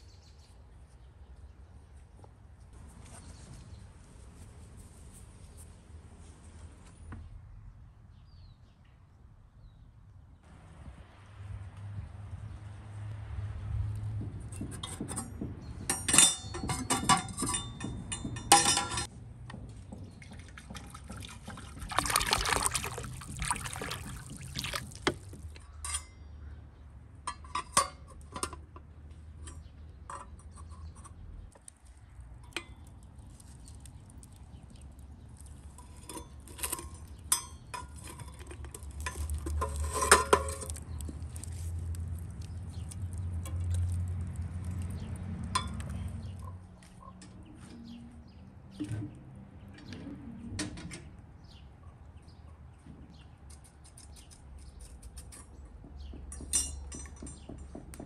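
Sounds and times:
liquid pouring: 0:21.4 - 0:25.6.

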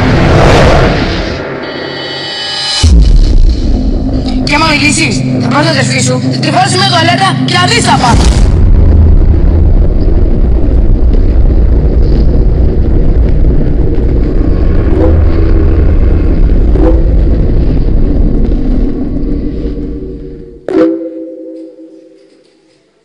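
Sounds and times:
dense low rumble with hiss: 0:02.8 - 0:20.7.

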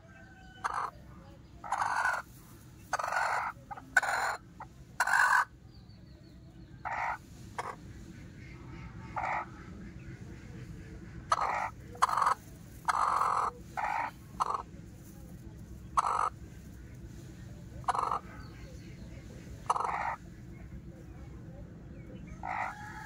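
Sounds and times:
hens calling: 0:00.0 - 0:05.6, 0:06.7 - 0:21.1, 0:21.9 - 0:23.0.

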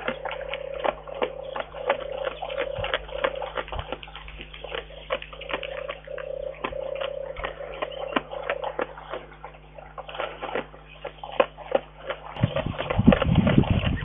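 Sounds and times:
bear mouth clicking and smacking: 0:00.0 - 0:14.0
faint steady hum: 0:00.0 - 0:14.0.

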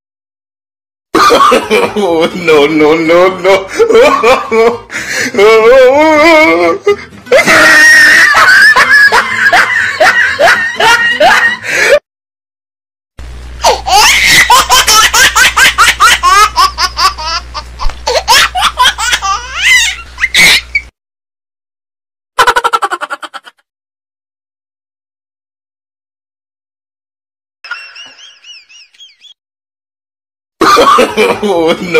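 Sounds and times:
loud laughter: 0:01.2 - 0:12.0, 0:13.6 - 0:17.4, 0:18.1 - 0:20.8, 0:22.4 - 0:23.6, 0:30.6 - 0:31.9
low steady hum: 0:13.2 - 0:20.2.

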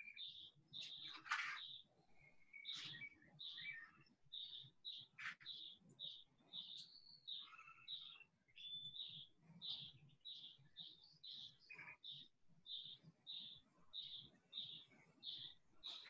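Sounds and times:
other bird calls: 0:00.0 - 0:01.9
faint bird chirping: 0:00.0 - 0:16.0.

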